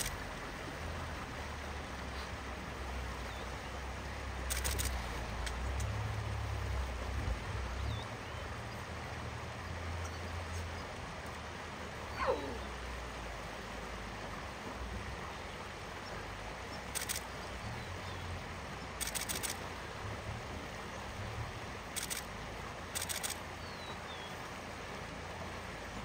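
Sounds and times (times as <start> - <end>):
river rushing over rocks: 0.0 - 26.0
camera shutter clicking: 4.5 - 5.0, 17.0 - 17.3, 19.0 - 19.6, 22.0 - 22.3, 23.0 - 23.4
falling animal call: 12.1 - 12.8.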